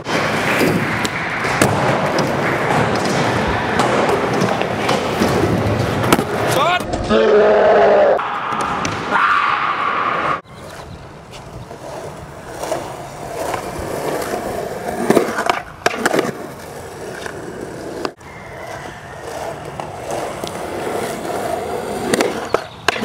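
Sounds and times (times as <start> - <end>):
skateboard wheels rolling on concrete: 0.0 - 23.0
skateboard clacking on concrete: 11.3 - 23.0.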